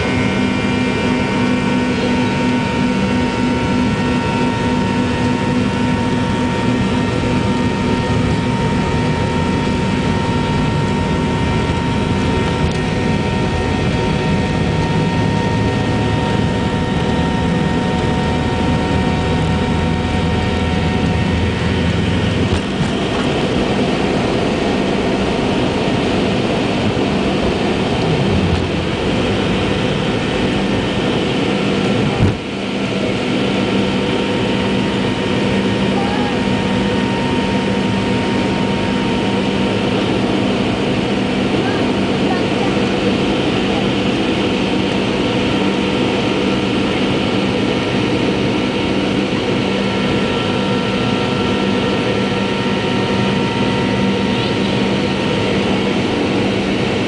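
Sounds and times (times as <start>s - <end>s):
jet engines whining: 0.0s - 57.0s
runway rumble: 10.6s - 32.6s.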